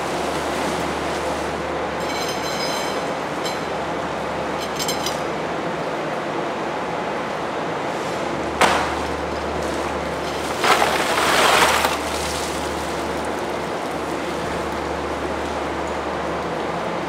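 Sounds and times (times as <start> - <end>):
low factory hum and hiss: 0.0 - 17.0
sharp knock: 8.6 - 9.0
ice clattering: 10.2 - 13.4.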